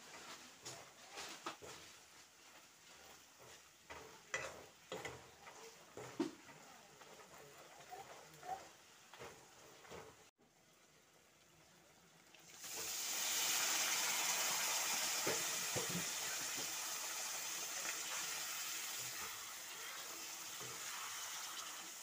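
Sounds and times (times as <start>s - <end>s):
meat sizzling in hot oil: 12.3s - 22.0s.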